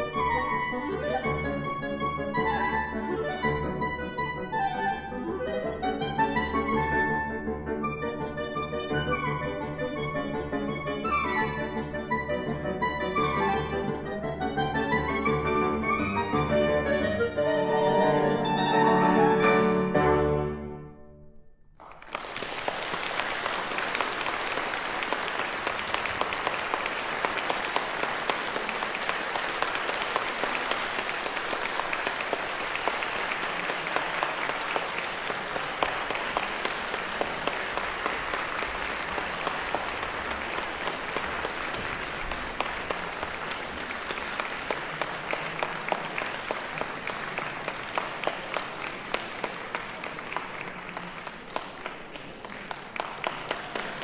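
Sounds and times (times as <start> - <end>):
audience applauding: 21.8 - 54.0.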